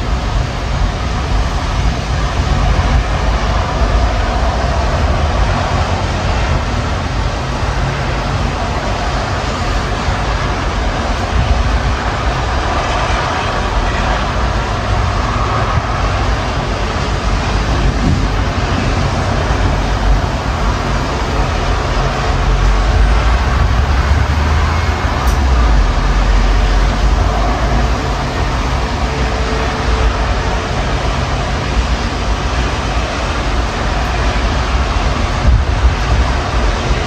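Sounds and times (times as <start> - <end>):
deep thunder rumble: 0.0 - 37.0
wind and rain rushing: 0.0 - 37.0.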